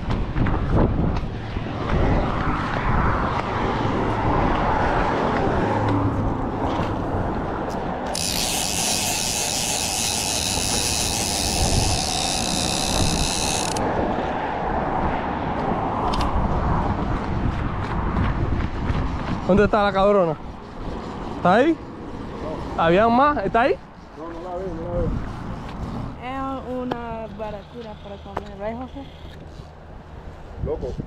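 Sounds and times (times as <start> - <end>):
fishing reel ratcheting buzz: 8.1 - 13.8.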